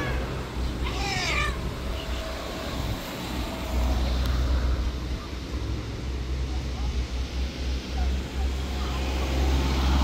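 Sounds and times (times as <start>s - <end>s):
cat meowing: 0.8s - 1.6s.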